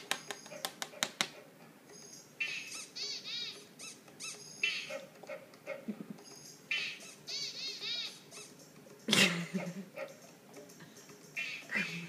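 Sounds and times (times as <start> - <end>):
high-pitched squeaks: 2.0 - 5.1, 6.2 - 8.7.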